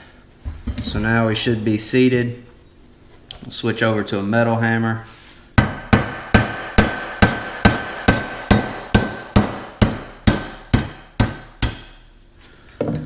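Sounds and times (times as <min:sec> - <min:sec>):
hammer striking metal tool: 0:05.6 - 0:12.2.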